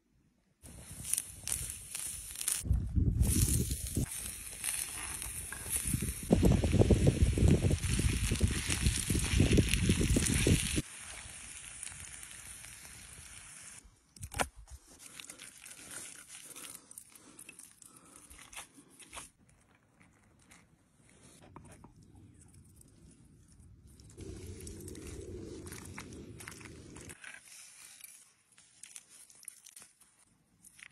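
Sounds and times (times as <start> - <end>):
low rumble: 24.0 - 27.2.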